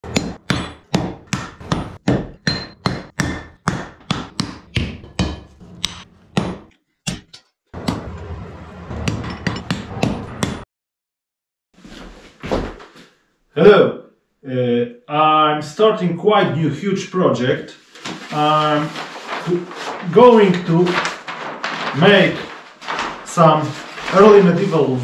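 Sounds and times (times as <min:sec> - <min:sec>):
hammer striking iron on anvil: 0:00.1 - 0:07.3.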